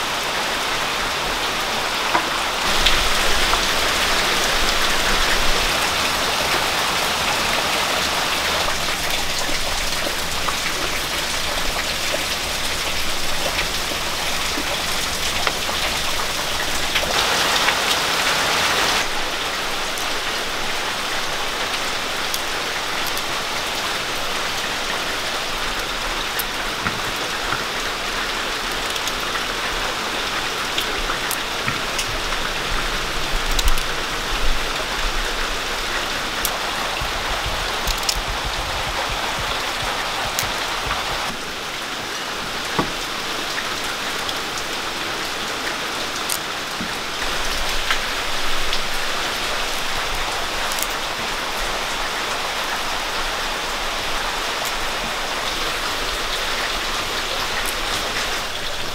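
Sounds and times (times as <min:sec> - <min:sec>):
rain falling: 0:00.0 - 0:58.9
knife clicking through seeds: 0:37.4 - 0:41.0.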